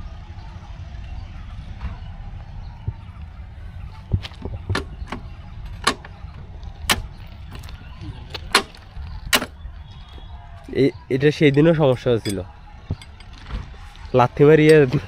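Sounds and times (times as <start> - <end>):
steady low rumble: 0.0 - 15.0
metallic clinks and knocks: 11.5 - 13.6.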